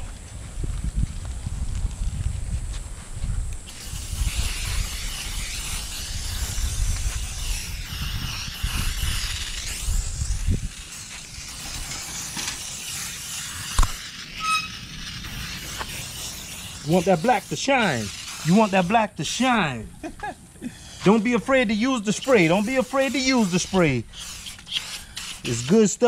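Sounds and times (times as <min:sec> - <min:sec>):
aerosol spray hissing: 0:03.6 - 0:26.0.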